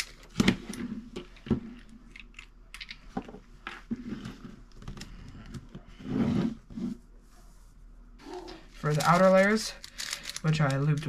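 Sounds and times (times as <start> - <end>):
plastic puzzle cube layers clicking: 8.9 - 11.0.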